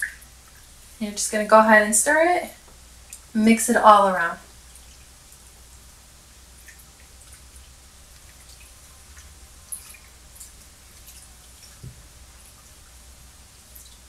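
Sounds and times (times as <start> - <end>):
water sloshing and dripping: 6.5 - 14.0
soft thump: 11.8 - 12.0.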